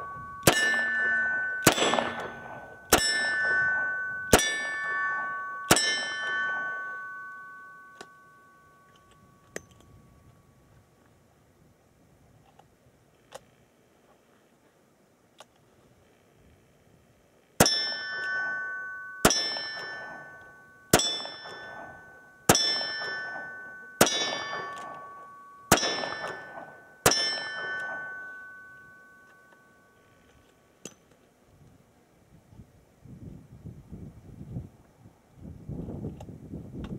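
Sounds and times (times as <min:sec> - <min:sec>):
steel target ringing: 0:00.0 - 0:10.2, 0:17.6 - 0:30.1.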